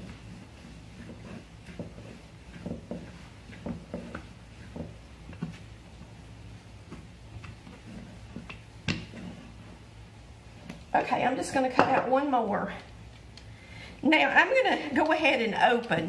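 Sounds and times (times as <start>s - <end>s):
rolling pin knocking on counter: 1.0s - 5.6s, 8.3s - 9.4s, 11.7s - 12.2s.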